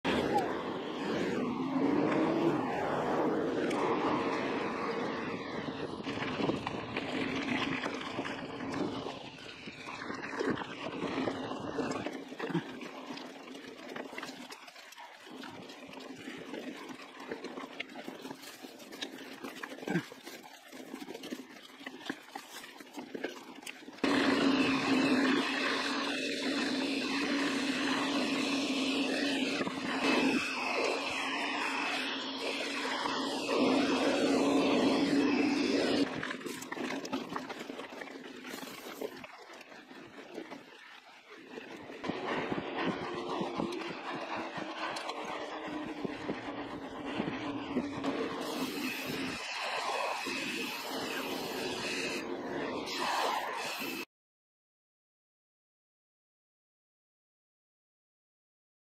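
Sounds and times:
wind on microphone: 0:00.0 - 0:13.2, 0:41.5 - 0:54.1
bike tyre rolling noise: 0:00.0 - 0:54.1.

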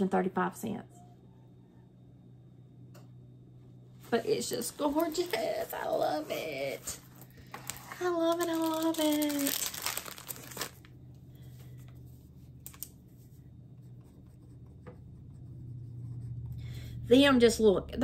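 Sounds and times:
plastic crinkling: 0:06.7 - 0:11.0, 0:12.6 - 0:13.0.

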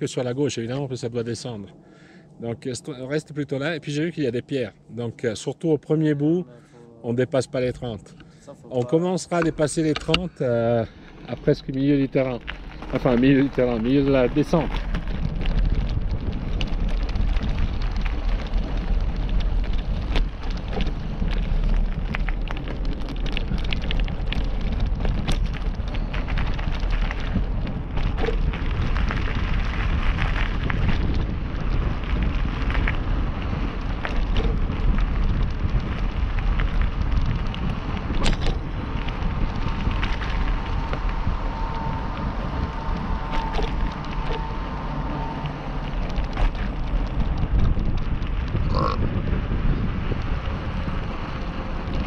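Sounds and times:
wheels crunching on gravel: 0:07.1 - 0:52.0
wind buffeting microphone: 0:07.6 - 0:52.0
stones clicking and rattling: 0:09.4 - 0:44.8, 0:45.4 - 0:49.0.

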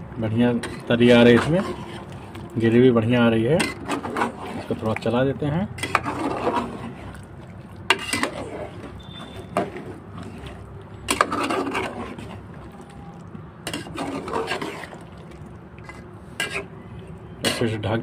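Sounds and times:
metal spatula scraping a pot: 0:00.4 - 0:02.4, 0:03.2 - 0:05.0, 0:05.8 - 0:07.2, 0:07.8 - 0:13.0, 0:13.6 - 0:16.8, 0:17.4 - 0:17.9.

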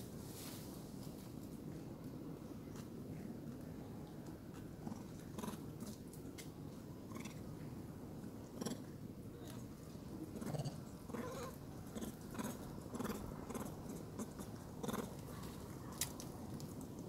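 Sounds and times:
monkeys rumbling: 0:08.6 - 0:08.9, 0:10.3 - 0:15.2.

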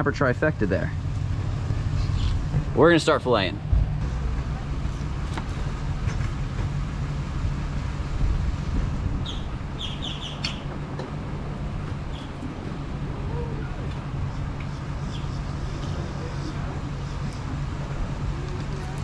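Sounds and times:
low mechanical rumble: 0:00.0 - 0:19.0
high chirps: 0:09.2 - 0:10.7.

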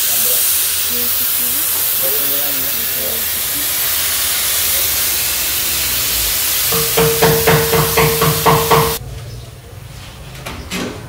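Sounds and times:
compressed air hissing: 0:00.0 - 0:09.0
rapid regular knocks: 0:06.7 - 0:09.0
steady machine hum: 0:06.7 - 0:09.0.

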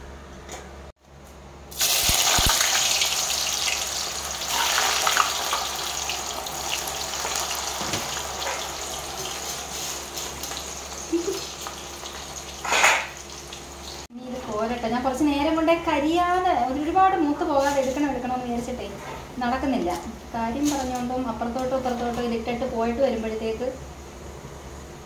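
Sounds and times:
chips sizzling in hot oil: 0:01.7 - 0:14.1.

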